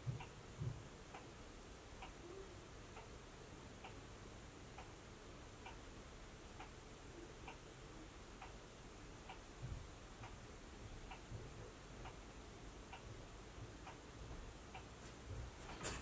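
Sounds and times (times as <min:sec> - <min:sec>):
faint low thuds: 0:00.0 - 0:00.9, 0:09.6 - 0:09.9
clock ticking softly: 0:00.0 - 0:16.0.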